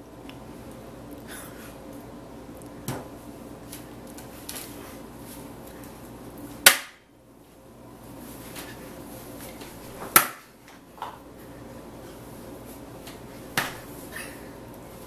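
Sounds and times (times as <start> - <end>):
steady background hum: 0.0 - 15.0.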